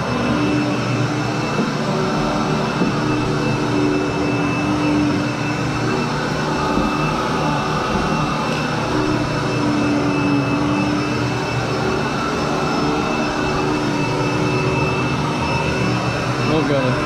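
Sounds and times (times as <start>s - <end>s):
upright vacuum cleaner running: 0.0s - 17.0s.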